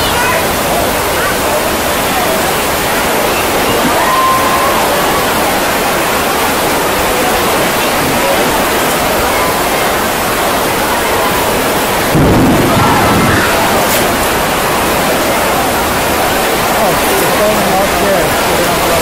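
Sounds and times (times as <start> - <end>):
heavy rain pouring: 0.0 - 19.0
thunder rumble: 12.0 - 16.2.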